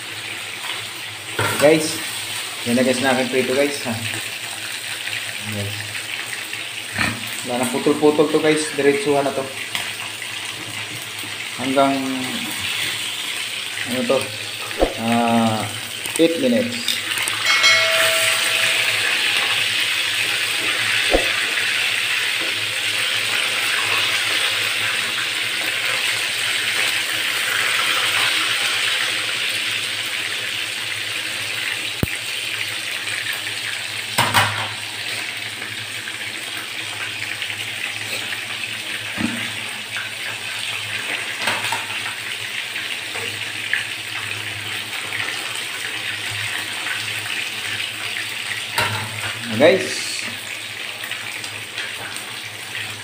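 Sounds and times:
chicken sizzling in hot oil: 0:00.0 - 0:53.0
tongs knocking on pan: 0:17.4 - 0:19.6, 0:21.1 - 0:21.4.

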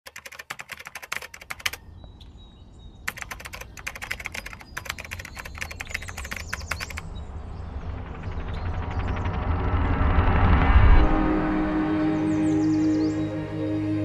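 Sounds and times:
computer keyboard typing: 0:00.1 - 0:01.8, 0:03.1 - 0:07.0
low rumble: 0:07.0 - 0:13.6.

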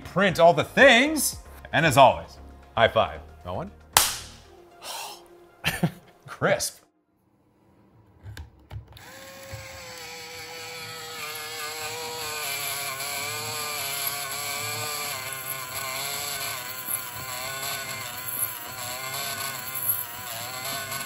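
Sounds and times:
small geared motor whirring: 0:09.0 - 0:21.0.

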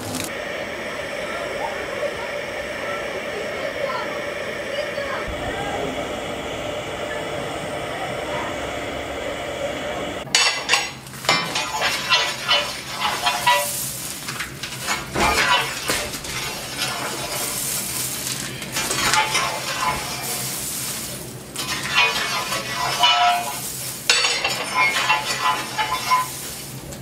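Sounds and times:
steam hissing: 0:00.0 - 0:27.0
fire tool scraping over coal: 0:10.6 - 0:27.0.

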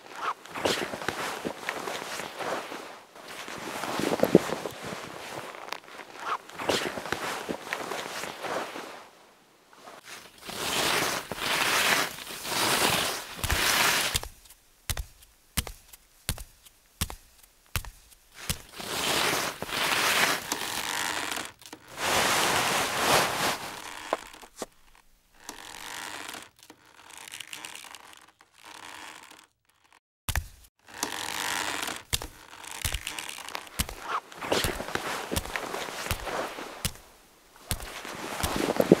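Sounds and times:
paper rustling and scraping: 0:00.0 - 0:09.2, 0:09.8 - 0:14.4, 0:18.3 - 0:25.0, 0:31.0 - 0:39.0.

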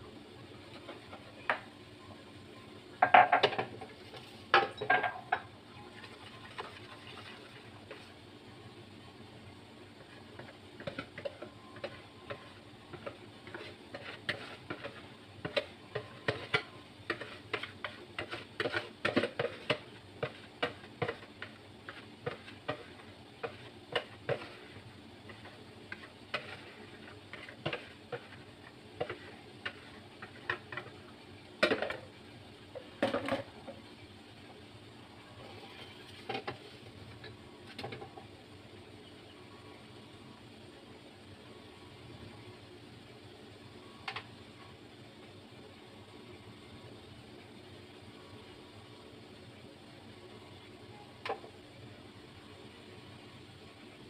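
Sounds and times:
whisk scraping plastic bowl: 0:10.8 - 0:30.5.

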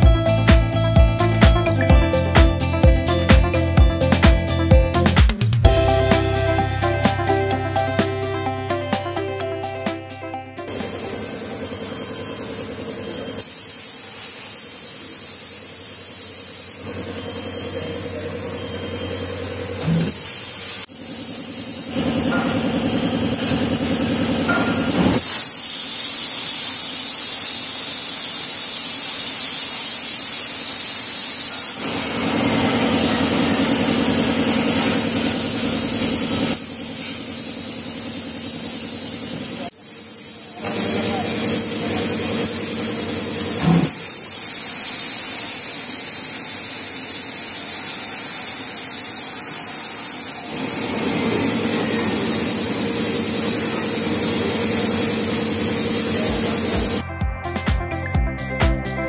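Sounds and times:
hiss of spraying air: 0:10.7 - 0:57.0.

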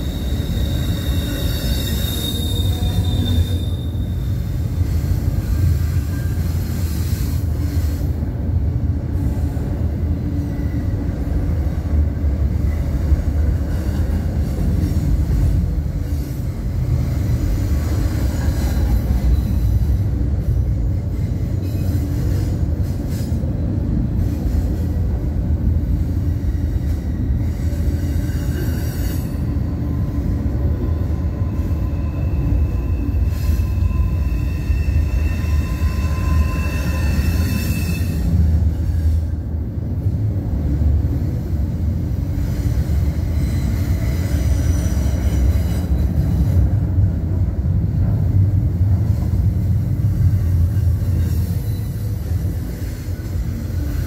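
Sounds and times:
high wheel squeal: 0:00.0 - 0:05.0, 0:30.9 - 0:39.2
steel wheels rumbling on rails: 0:00.0 - 0:54.0.

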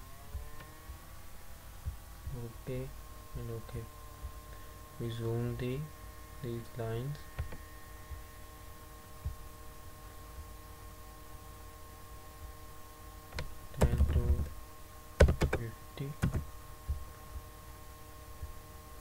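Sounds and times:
steady background hum: 0:00.0 - 0:19.0
keyboard key presses: 0:13.4 - 0:14.5, 0:15.2 - 0:15.6, 0:16.2 - 0:16.5.

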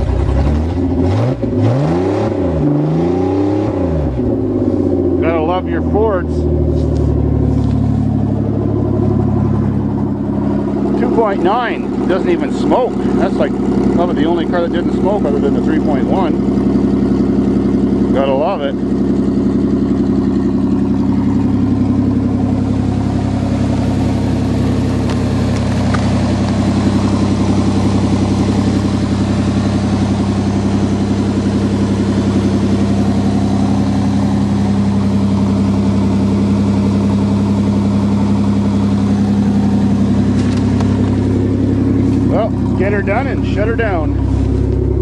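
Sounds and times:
pickup truck engine idling: 0:04.1 - 0:45.0.

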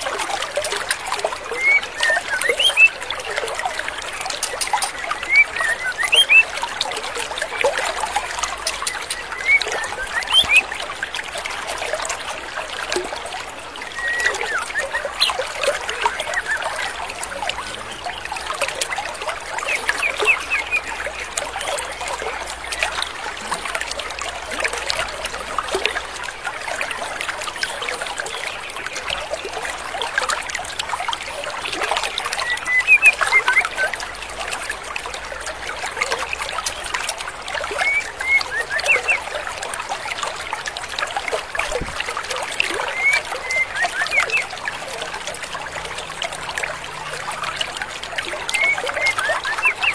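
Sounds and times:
stream water running: 0:00.0 - 0:49.9
bird chirps and whistles: 0:01.6 - 0:02.9, 0:05.3 - 0:06.4, 0:09.4 - 0:10.6, 0:14.0 - 0:15.4.

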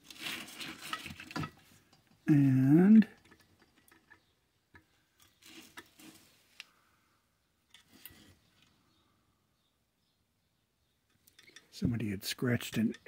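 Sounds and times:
faint clicks and scrapes on metal: 0:03.0 - 0:06.8, 0:07.6 - 0:08.9, 0:11.0 - 0:11.8.

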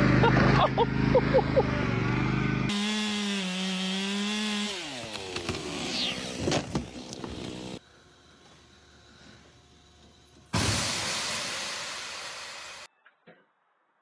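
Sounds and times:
chainsaw cutting log: 0:02.1 - 0:09.2.

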